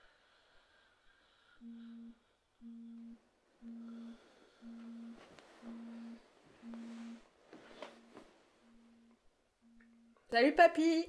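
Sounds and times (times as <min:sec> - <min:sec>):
smartphone vibrating buzz: 0:01.6 - 0:07.2.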